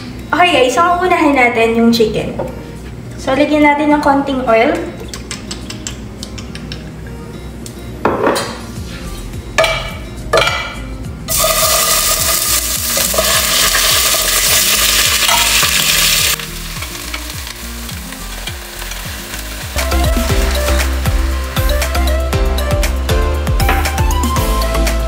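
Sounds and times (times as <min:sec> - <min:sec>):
chicken sizzling in hot oil: 0:11.3 - 0:21.7.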